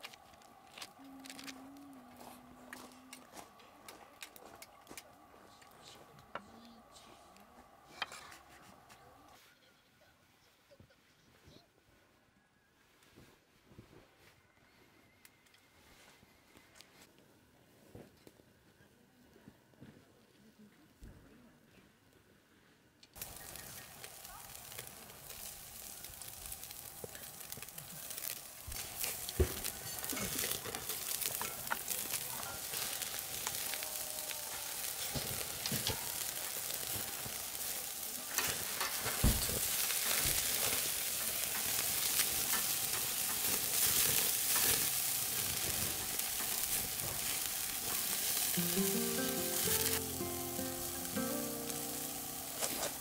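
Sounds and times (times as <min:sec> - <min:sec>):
meat sizzling on a grill: 0:00.0 - 0:01.6, 0:23.2 - 0:53.0
music: 0:48.5 - 0:53.0.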